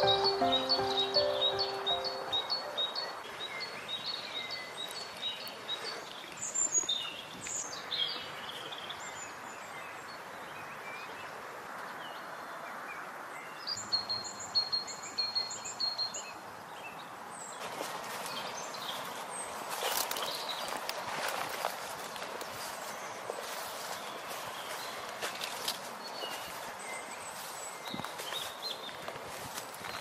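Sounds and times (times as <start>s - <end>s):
steady background hiss: 0.0s - 4.1s
small songbirds chirping: 0.0s - 30.0s
scuffing noises: 19.0s - 30.0s.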